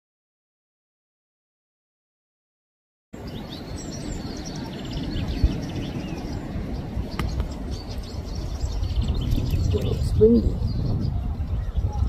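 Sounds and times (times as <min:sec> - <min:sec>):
small birds chirping: 0:03.2 - 0:12.0
wind buffeting microphone: 0:03.2 - 0:12.0.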